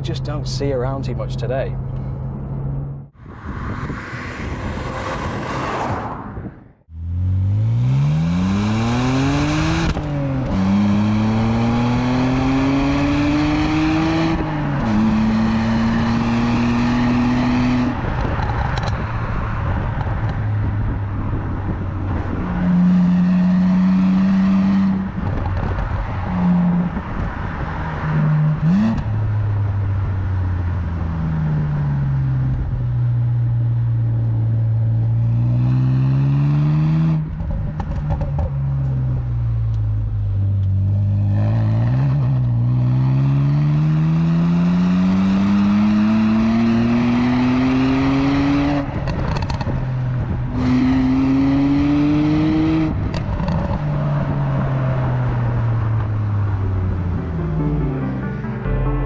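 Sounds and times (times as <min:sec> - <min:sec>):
car engine revving: 0:02.2 - 0:19.0, 0:40.7 - 0:59.0.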